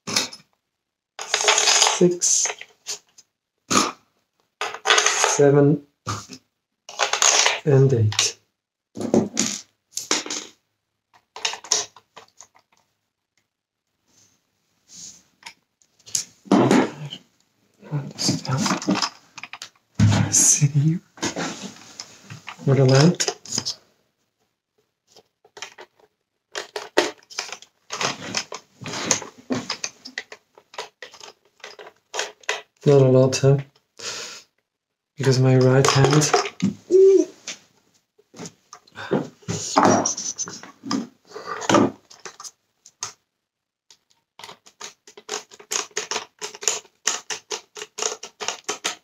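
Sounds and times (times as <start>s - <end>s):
plastic parts clicking and rattling: 1.2s - 3.3s, 4.4s - 5.4s, 6.2s - 8.4s, 9.0s - 13.6s, 18.1s - 20.6s, 21.2s - 23.8s, 25.1s - 32.8s, 35.5s - 36.7s, 39.6s - 43.2s, 43.9s - 49.0s.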